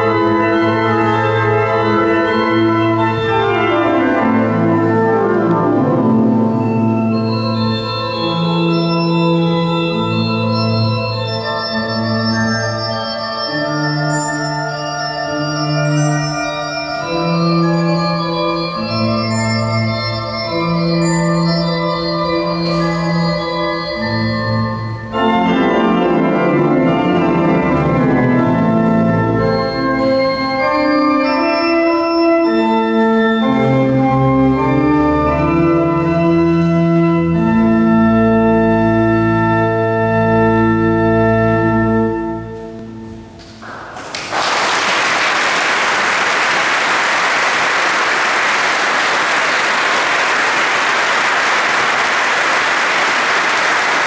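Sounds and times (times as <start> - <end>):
organ playing chords: 0.0 - 44.1, 45.1 - 54.0
audience applause: 43.4 - 54.0.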